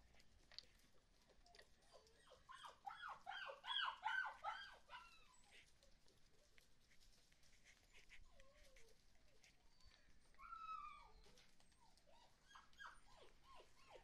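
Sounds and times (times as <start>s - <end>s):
puppy whining: 1.4s - 5.8s, 7.6s - 14.0s.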